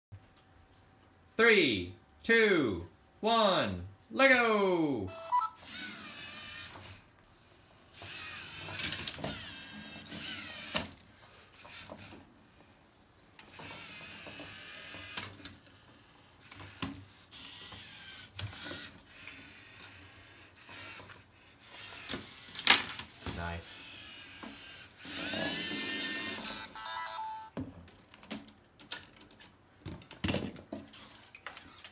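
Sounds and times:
robot motors whirring: 5.6 - 7.0, 7.9 - 12.3, 13.4 - 23.2, 23.8 - 26.7
plastic parts clicking and knocking: 27.6 - 31.9.

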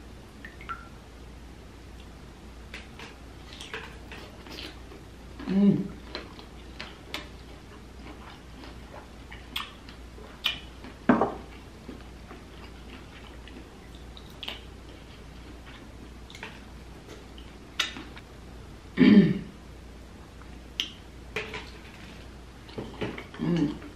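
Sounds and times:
person chewing: 2.7 - 18.2
wet mouth clicks: 20.8 - 21.0.

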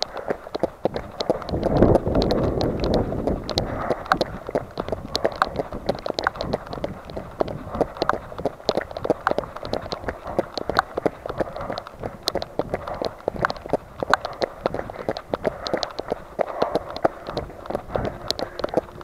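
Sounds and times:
running footsteps on wet pavement: 0.0 - 19.0.

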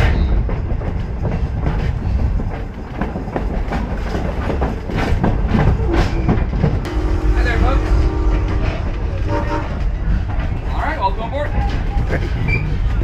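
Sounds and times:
railway car rattling: 0.0 - 13.0
train coach rumbling: 0.0 - 13.0
wheels clicking on rails: 0.0 - 13.0.

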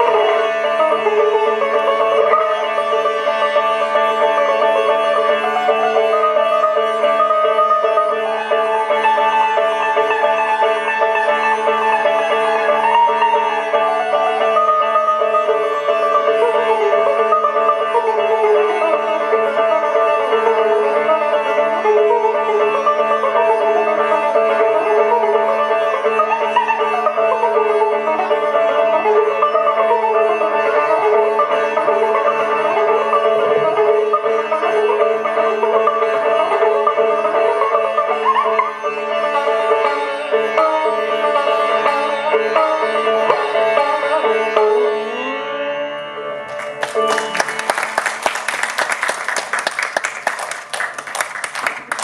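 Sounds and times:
sitar playing sliding phrases: 0.0 - 48.3
audience applause: 46.5 - 52.0.

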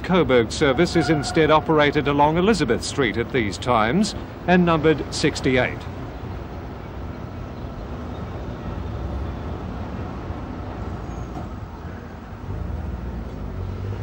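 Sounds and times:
traffic noise: 0.0 - 14.0
tram rumbling: 0.0 - 14.0.

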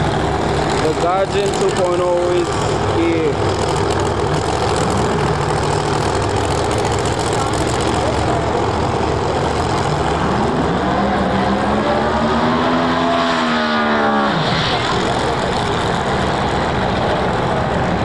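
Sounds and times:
race car engines idling loudly: 0.0 - 12.6, 14.1 - 18.0
engine revving high: 10.0 - 16.1.

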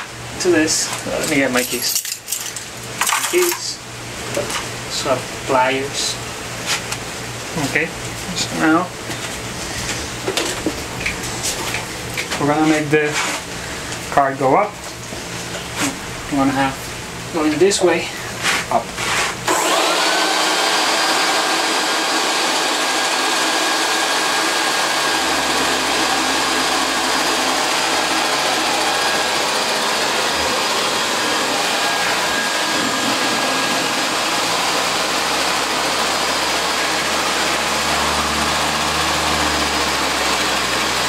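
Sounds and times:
air blower whine and rush: 18.3 - 41.0.

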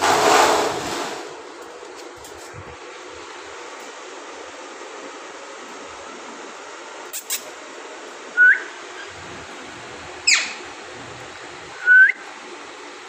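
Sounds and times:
parrot rising whistle: 8.4 - 9.2, 10.2 - 10.6, 11.8 - 12.2
parrot screech: 10.2 - 10.6.

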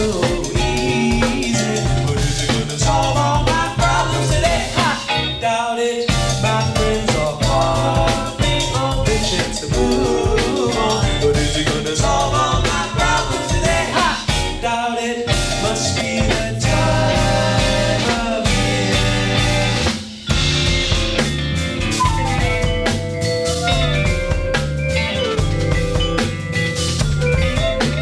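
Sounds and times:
live band playing: 0.0 - 5.5, 6.1 - 14.7, 15.3 - 28.0
person singing: 0.0 - 19.9.

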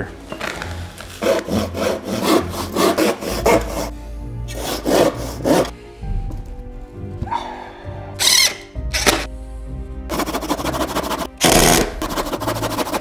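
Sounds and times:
hand saw cutting plywood: 1.2 - 3.9, 4.5 - 5.7, 10.1 - 13.0.

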